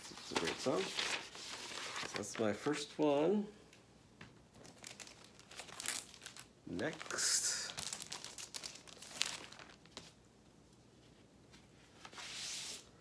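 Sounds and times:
plastic sleeves crinkling: 0.0s - 2.6s, 4.5s - 10.2s.

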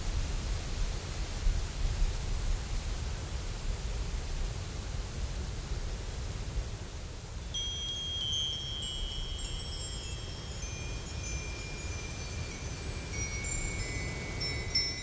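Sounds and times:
high chimes ringing: 7.5s - 15.0s.

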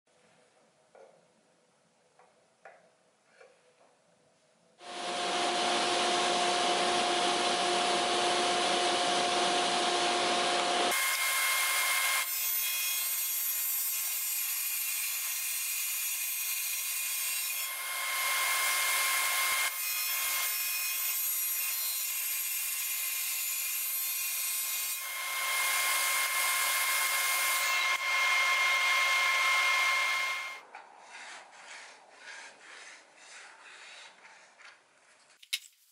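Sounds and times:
table saw whining: 4.8s - 14.2s, 14.9s - 22.6s, 23.2s - 30.6s.

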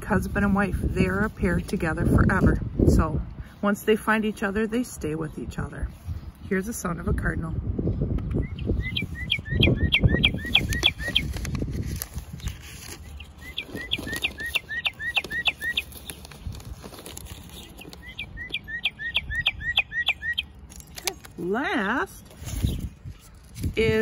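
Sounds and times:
bird whistling song: 8.2s - 11.4s, 12.4s - 16.4s, 17.5s - 20.9s, 22.2s - 24.0s.

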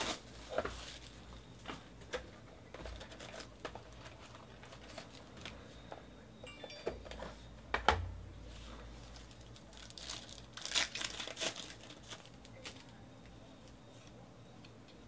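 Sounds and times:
soft rustling of foil packs: 0.0s - 6.3s, 8.5s - 14.2s.

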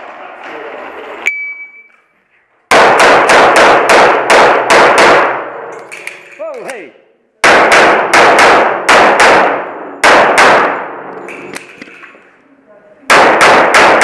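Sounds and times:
pistol shots echoing: 2.7s - 6.3s, 7.4s - 12.1s, 13.1s - 14.0s.

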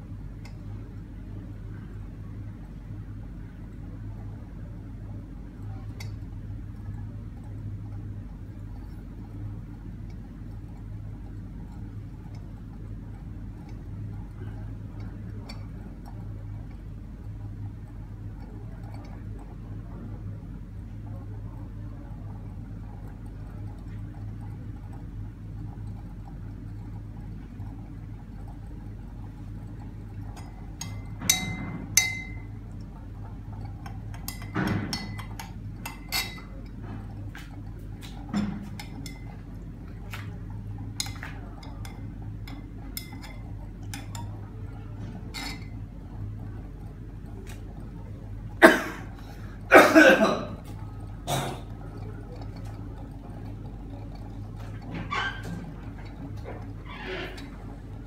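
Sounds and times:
glass rods clinking on beakers: 30.3s - 32.6s, 34.2s - 36.5s, 38.7s - 39.4s, 45.3s - 45.8s.

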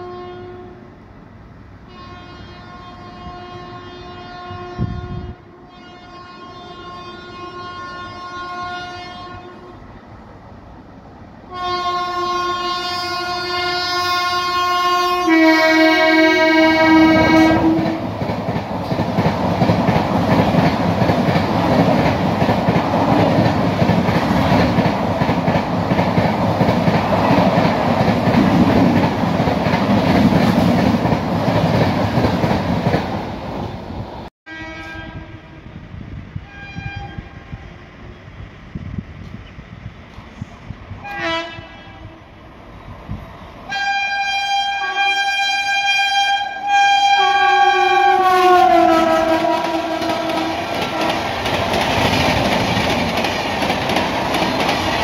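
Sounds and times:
train horn blasts: 0.0s - 0.9s, 1.8s - 9.9s, 11.5s - 18.2s, 34.5s - 35.8s, 36.4s - 37.8s, 41.0s - 42.4s, 43.7s - 51.4s
train coaches rushing and clattering: 10.1s - 34.2s, 47.2s - 55.0s.

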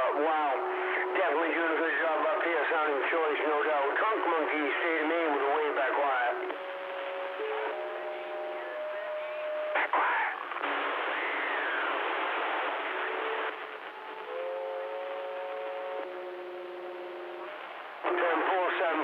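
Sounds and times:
radio static hiss: 0.0s - 19.0s
whistling heterodyne tones: 6.6s - 9.8s.

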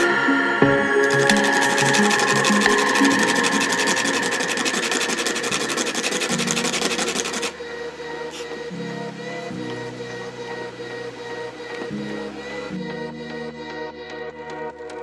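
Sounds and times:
plastic sanded on sandpaper: 4.6s - 7.5s.

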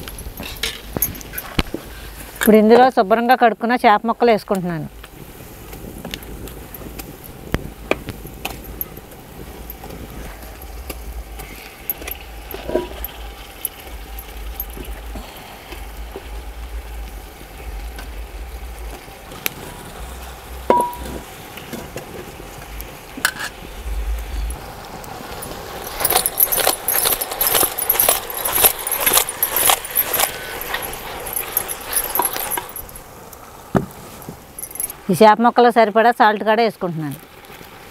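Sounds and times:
steady low rumble: 6.1s - 21.3s, 22.4s - 33.7s
metal plate clinking on pot: 20.7s - 21.2s.

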